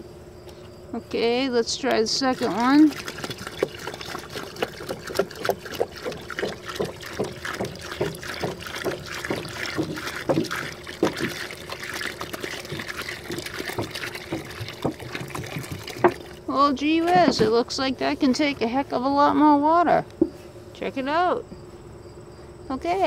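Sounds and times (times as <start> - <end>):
jug glugging: 1.1 - 20.4
water pouring and splashing: 1.8 - 18.4.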